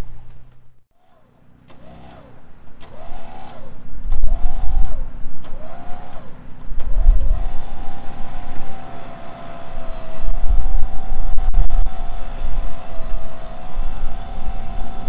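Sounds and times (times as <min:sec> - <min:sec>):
electric winch motor whining: 0:01.0 - 0:15.0
heavy low rumble: 0:06.7 - 0:15.0.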